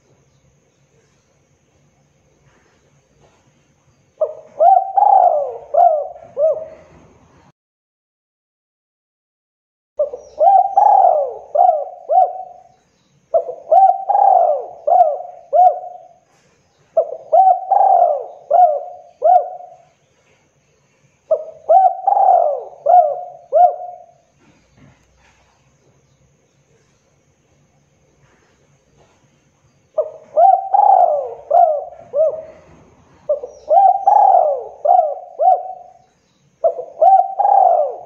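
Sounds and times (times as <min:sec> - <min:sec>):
dove cooing: 0:04.2 - 0:07.5, 0:10.0 - 0:20.0, 0:21.3 - 0:25.4, 0:30.0 - 0:38.0.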